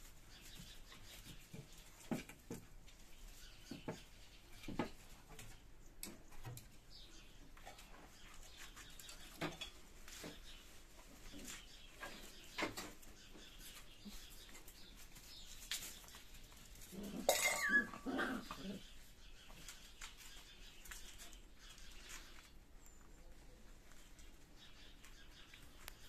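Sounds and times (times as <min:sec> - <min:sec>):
puppy yelping barks: 0:17.3 - 0:18.6.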